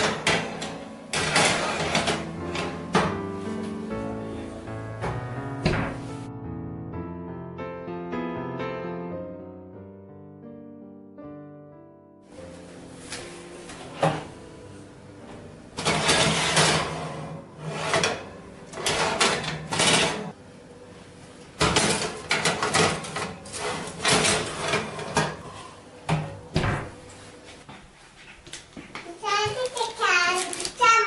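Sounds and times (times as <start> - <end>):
oven rack and tray clattering: 0.0 - 3.3, 15.7 - 20.4, 21.6 - 27.0.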